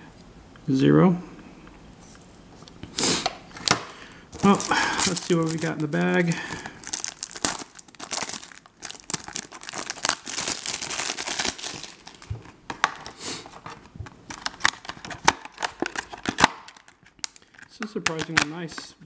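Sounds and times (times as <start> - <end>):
plastic bag crinkling and tearing: 3.5 - 18.5
box crackling and tapping: 6.8 - 18.8.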